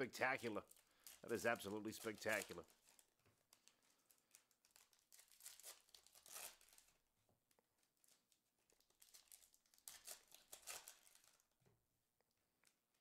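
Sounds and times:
foil wrapper crinkling and tearing: 0.2s - 7.0s, 7.9s - 11.5s.

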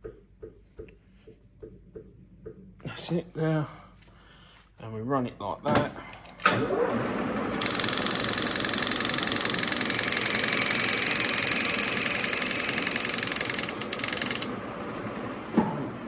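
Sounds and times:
spindle running without cutting: 6.7s - 15.5s
milling machine cutting metal: 7.4s - 15.3s.

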